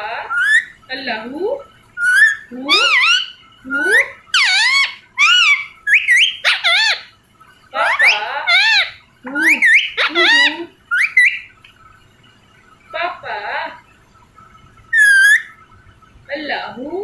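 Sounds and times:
parrot squawking: 0:00.0 - 0:11.7, 0:14.9 - 0:15.6.

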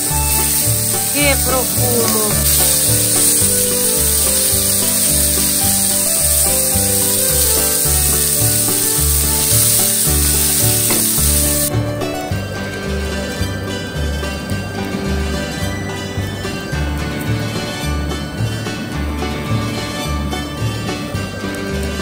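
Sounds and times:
patties sizzling on a griddle: 0:00.0 - 0:11.8
music with steady bass beat: 0:00.0 - 0:22.0.

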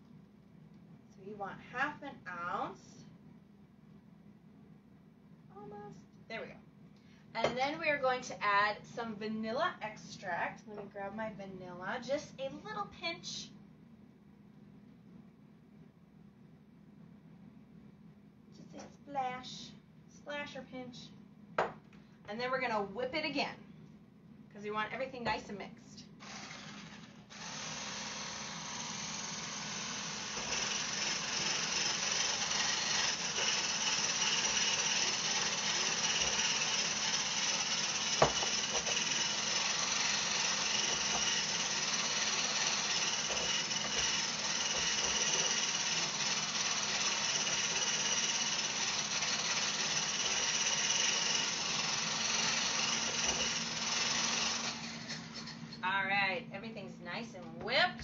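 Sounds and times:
stick blender running: 0:26.2 - 0:55.6.

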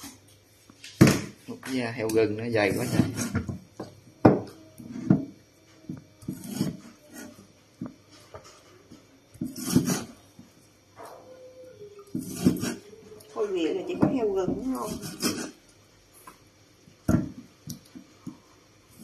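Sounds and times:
knife scraping: 0:02.7 - 0:03.4, 0:06.2 - 0:07.5, 0:09.4 - 0:10.2, 0:12.1 - 0:13.0, 0:14.8 - 0:15.6.

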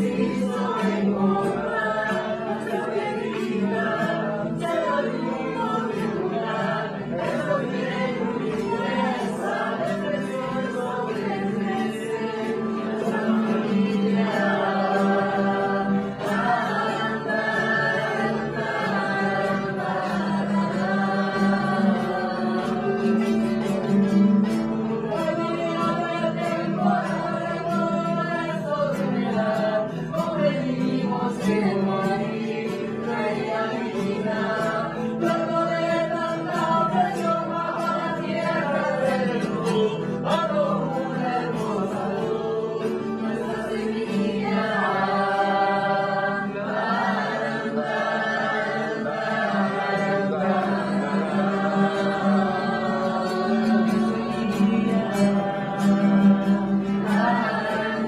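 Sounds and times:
voices singing chant-like melody: 0:00.0 - 0:58.0.

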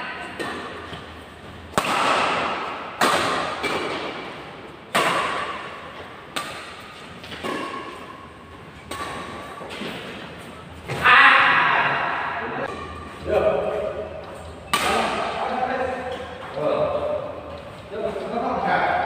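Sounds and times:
rackets hitting a shuttlecock: 0:00.0 - 0:10.3, 0:14.3 - 0:17.0.

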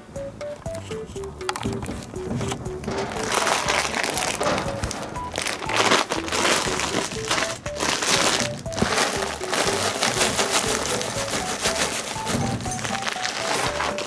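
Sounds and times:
light background music: 0:00.0 - 0:14.0
foil bag crinkling: 0:01.7 - 0:14.0.

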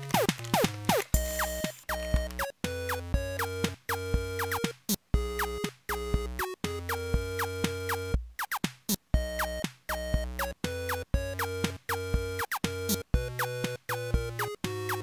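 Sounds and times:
electronic music with synthesizer: 0:00.1 - 0:15.0.

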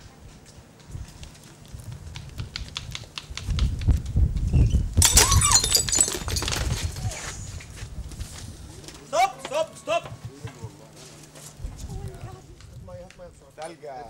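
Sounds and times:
footsteps running down stone steps: 0:00.8 - 0:04.5, 0:09.4 - 0:10.8.

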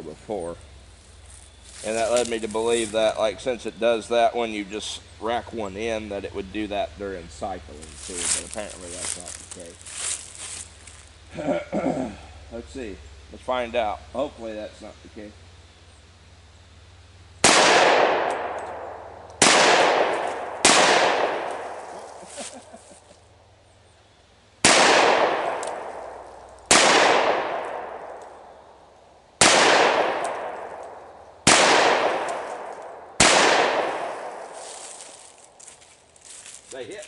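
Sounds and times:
pistol shots with echo: 0:17.4 - 0:21.8, 0:24.6 - 0:28.5, 0:29.4 - 0:34.5.

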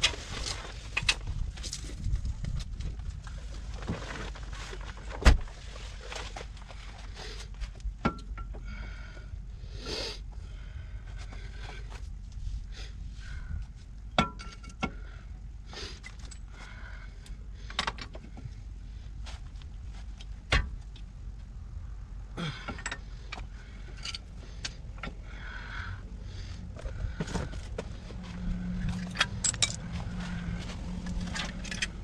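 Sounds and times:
steady low hum: 0:00.0 - 0:32.0
hand tools clinking on metal parts: 0:28.8 - 0:30.3.

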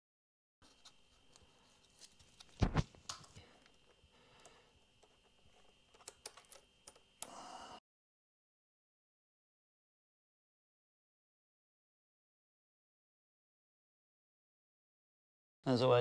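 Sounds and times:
small clicks and taps: 0:04.4 - 0:07.3.

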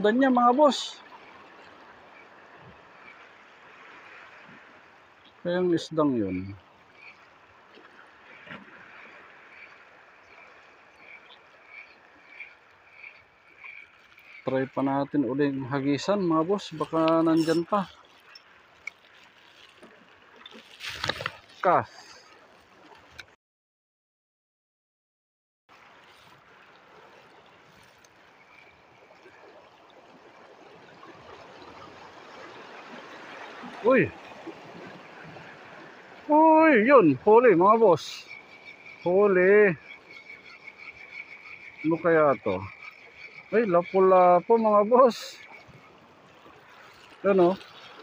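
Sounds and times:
water lapping against rocky shore: 0:00.0 - 0:23.3, 0:25.7 - 0:48.0
sea water washing over rocks: 0:25.8 - 0:38.3.

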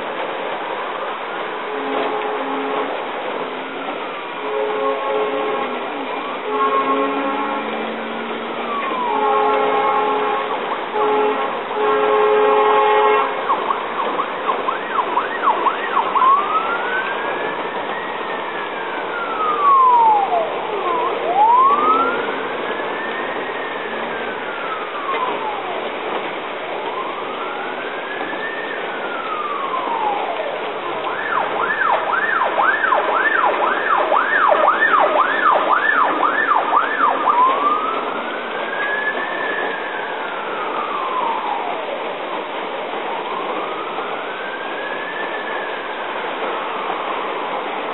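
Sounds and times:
heavy rain hiss: 0:00.0 - 0:47.9
emergency siren wailing and yelping: 0:04.5 - 0:11.2, 0:12.5 - 0:47.8
steady horn-like note: 0:09.0 - 0:13.4.

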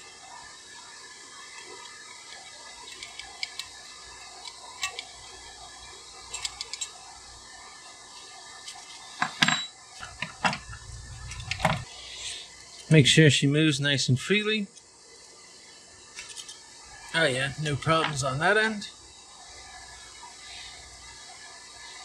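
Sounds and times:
metal parts clicking and clinking: 0:01.6 - 0:05.2, 0:06.3 - 0:07.0, 0:08.6 - 0:10.7, 0:16.2 - 0:16.6
tools knocking and clattering: 0:09.2 - 0:10.7.

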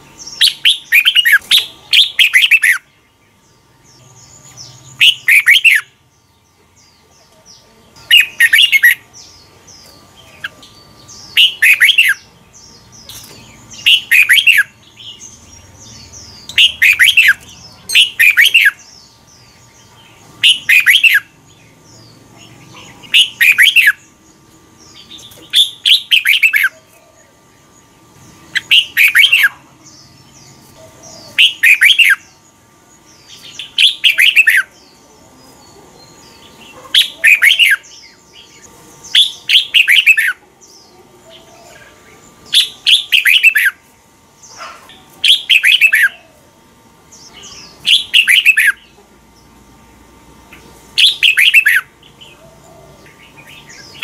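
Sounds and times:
bird singing whistled phrases: 0:00.4 - 0:02.9, 0:11.3 - 0:12.3, 0:13.8 - 0:14.8, 0:16.5 - 0:18.9, 0:20.4 - 0:21.3, 0:23.1 - 0:24.0, 0:28.6 - 0:29.6, 0:31.3 - 0:32.3, 0:33.6 - 0:34.7, 0:37.0 - 0:37.9, 0:42.5 - 0:43.8, 0:47.4 - 0:48.8, 0:51.0 - 0:51.9.

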